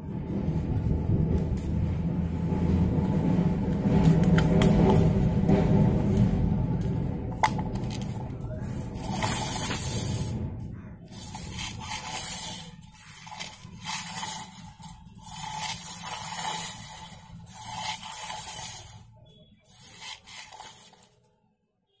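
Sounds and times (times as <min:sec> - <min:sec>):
low rumble: 0:00.0 - 0:13.8
measuring tape blade scraping: 0:07.3 - 0:10.4, 0:11.1 - 0:21.2.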